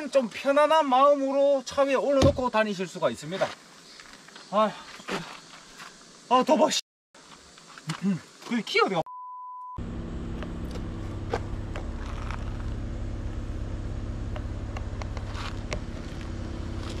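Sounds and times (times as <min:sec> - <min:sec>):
car engine humming: 0:09.8 - 0:17.0.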